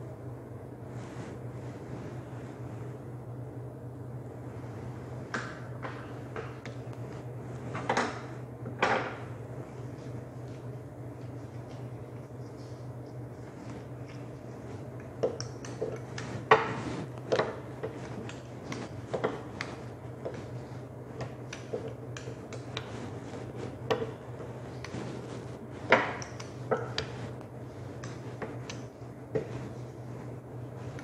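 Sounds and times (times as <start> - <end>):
steady low hum: 0.0 - 31.0
rolling pin knocking on countertop: 25.9 - 27.1.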